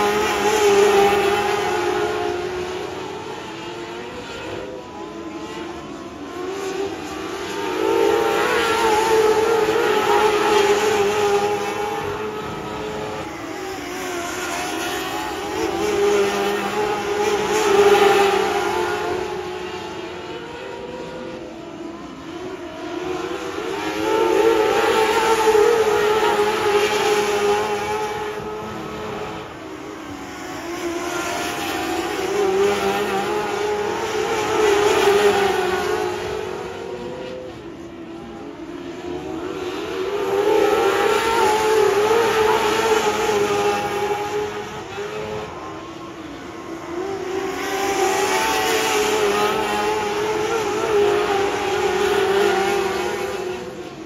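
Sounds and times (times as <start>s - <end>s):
race car engines passing: 0.0s - 54.0s.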